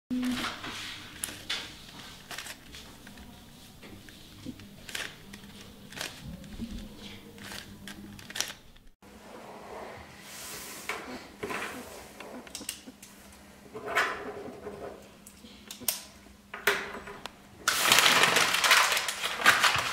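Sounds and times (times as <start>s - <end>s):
puzzle cube clicking and rattling: 1.1s - 3.3s, 3.9s - 9.0s.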